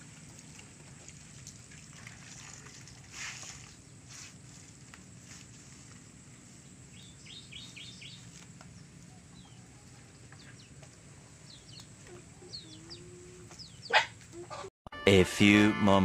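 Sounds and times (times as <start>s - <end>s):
faint bird chirping: 6.2s - 14.7s.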